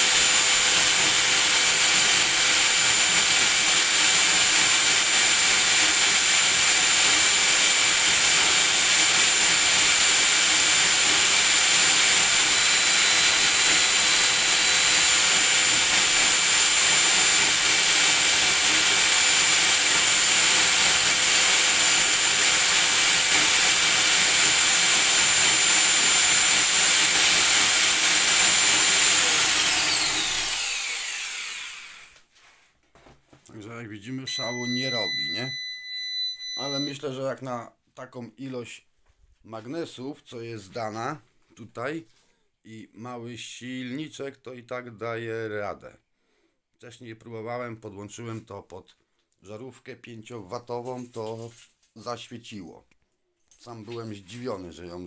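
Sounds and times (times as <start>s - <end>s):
electric drill whining: 0.0s - 32.2s.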